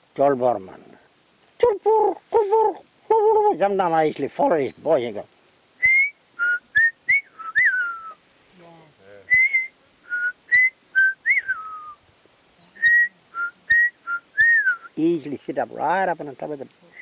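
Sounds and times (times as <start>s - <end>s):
man whistling bird song: 5.8s - 8.2s, 9.3s - 12.0s, 12.8s - 15.0s.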